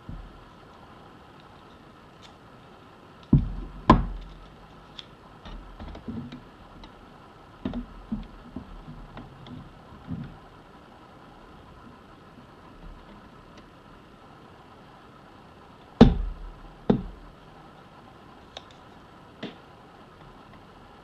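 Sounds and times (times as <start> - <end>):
sharp knocks: 3.3 - 4.3, 16.0 - 17.2.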